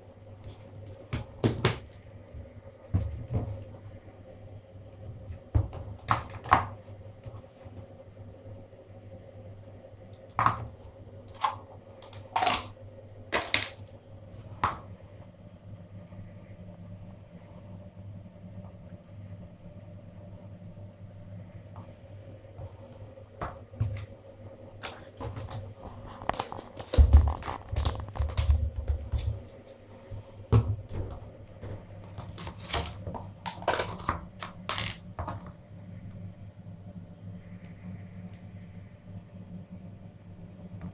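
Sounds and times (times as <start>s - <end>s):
plastic tubs crinkling: 24.8s - 29.4s.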